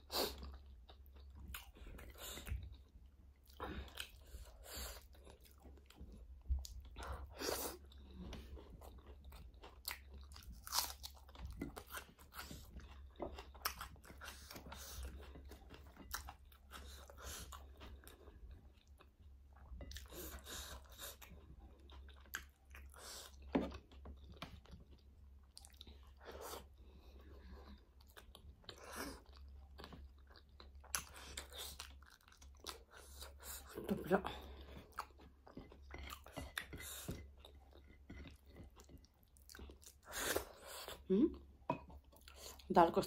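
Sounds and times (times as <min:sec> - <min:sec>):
wet chewing: 0:00.1 - 0:42.7
food crunching: 0:08.8 - 0:20.3.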